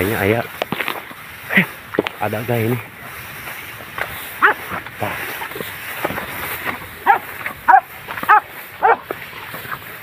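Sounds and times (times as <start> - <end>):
dog yelping barks: 4.4 - 4.8, 7.0 - 9.1.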